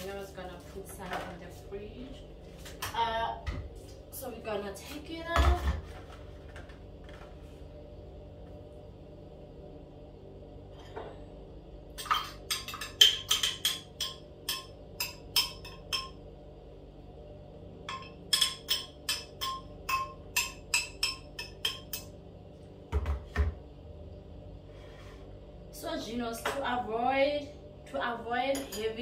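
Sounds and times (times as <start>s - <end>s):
knocking on blender jug: 22.9s - 23.6s.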